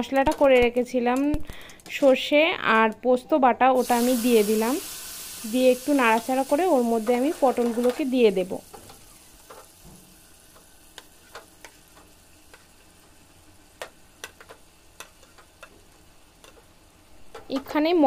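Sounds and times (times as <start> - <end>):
paste frying in oil: 3.8 - 18.0
metal spatula clicks and taps: 13.8 - 15.8, 16.4 - 16.6.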